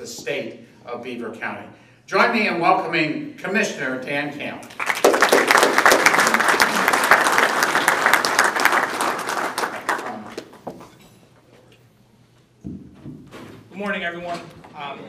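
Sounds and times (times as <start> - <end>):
audience applauding: 4.7 - 10.6.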